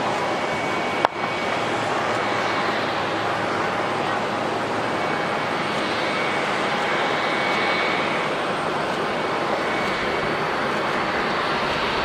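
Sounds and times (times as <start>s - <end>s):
airliner engines roaring: 0.0s - 12.0s
faint high whine: 0.0s - 12.0s
jet airliner taxiing: 0.0s - 12.0s.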